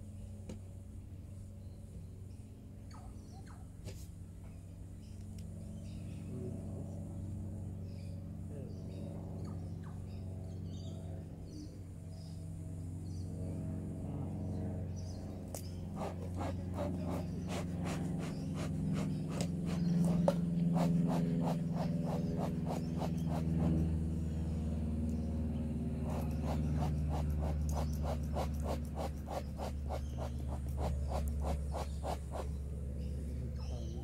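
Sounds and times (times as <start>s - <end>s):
bees buzzing: 15.7s - 24.3s, 25.5s - 32.7s.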